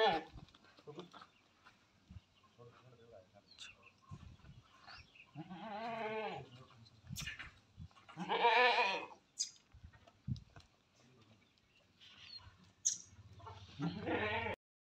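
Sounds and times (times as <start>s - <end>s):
goat bleating: 0.0s - 0.3s, 5.4s - 6.5s, 8.1s - 9.2s, 13.7s - 14.6s.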